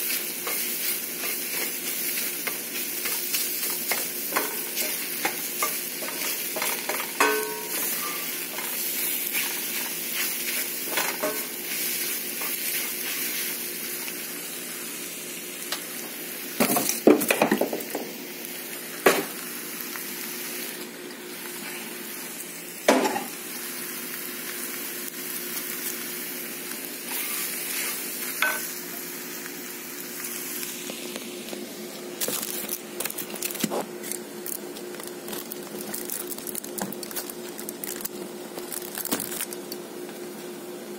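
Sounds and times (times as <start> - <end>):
spatula stirring and scraping: 0.0 - 13.4
eggs sizzling in a skillet: 0.0 - 39.8.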